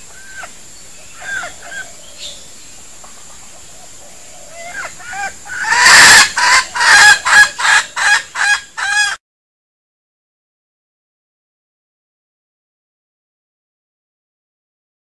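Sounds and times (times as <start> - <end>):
rooster calling: 4.2 - 9.2.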